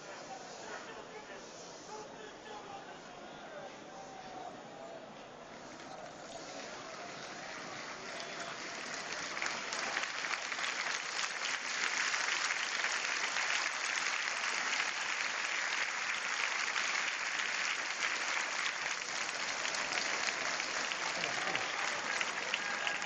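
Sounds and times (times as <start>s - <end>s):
crowd applauding: 6.6s - 23.0s.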